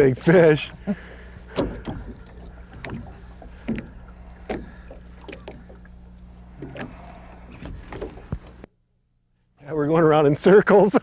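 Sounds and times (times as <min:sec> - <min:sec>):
knocks and water splashes: 0:00.0 - 0:08.7
boat motor hum: 0:00.0 - 0:11.0.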